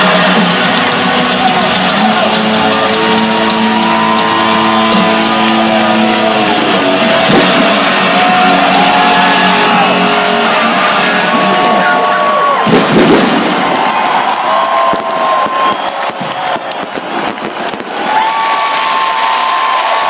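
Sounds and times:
live rock band playing: 0.0 - 12.1
electric guitar chords: 0.0 - 12.8
stadium crowd: 0.0 - 20.0.

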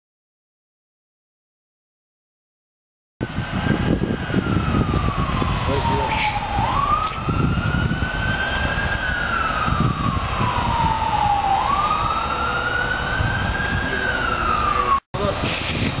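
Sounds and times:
emergency siren wailing: 3.2 - 15.1.

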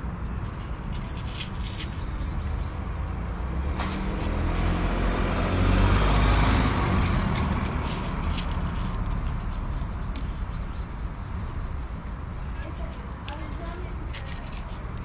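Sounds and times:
vehicle passing by: 1.0 - 12.6.

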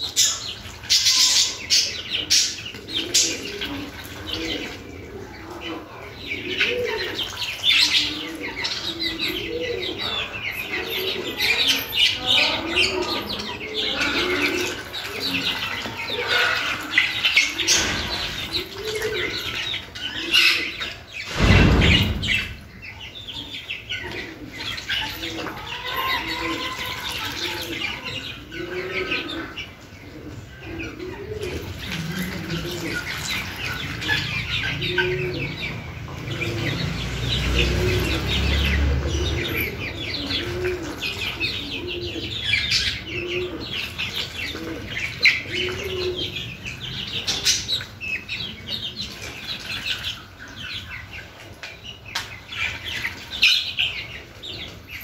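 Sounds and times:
bills pecking in feed: 0.0 - 55.0
loud low thump: 21.3 - 22.8.

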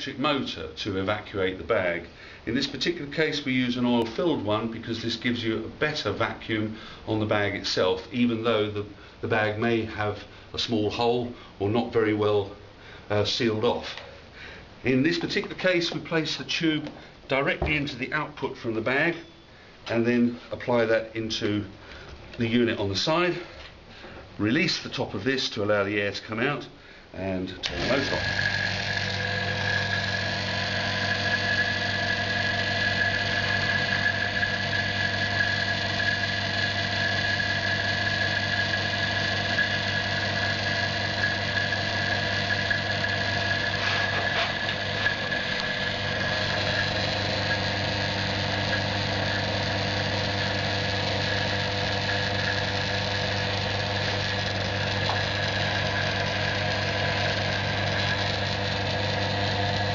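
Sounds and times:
electric vacuum pump humming: 27.6 - 59.9.

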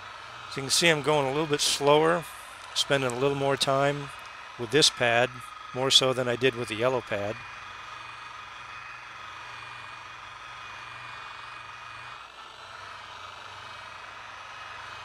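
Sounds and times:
electric polisher running: 0.0 - 15.0.

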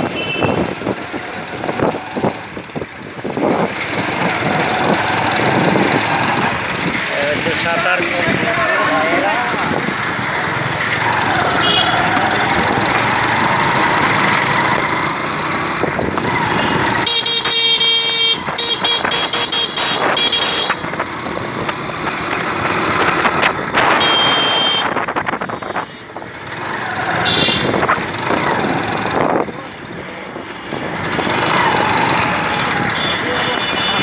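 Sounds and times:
wind noise: 0.0 - 17.1, 18.2 - 34.0
traffic noise: 0.0 - 34.0
vehicle horn honking: 0.2 - 0.6, 11.6 - 12.0, 16.6 - 20.8, 23.9 - 26.0, 27.2 - 27.8.

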